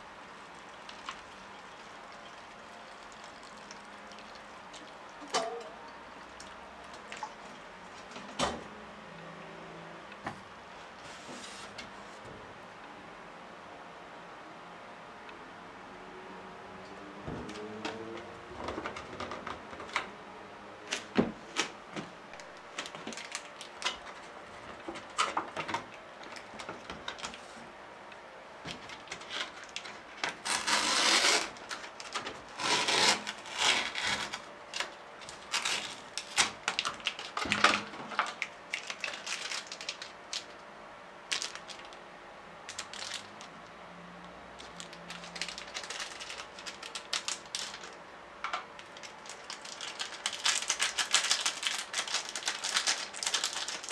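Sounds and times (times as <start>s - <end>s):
plastic sachets crinkling and tearing: 22.4s - 27.4s, 28.8s - 40.6s, 41.3s - 42.0s, 42.7s - 43.6s, 44.6s - 48.0s, 48.8s - 53.9s.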